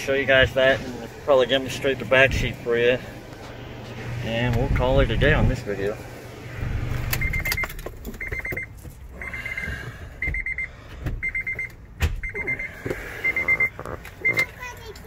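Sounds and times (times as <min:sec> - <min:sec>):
car warning chime beeping: 0:06.6 - 0:14.7.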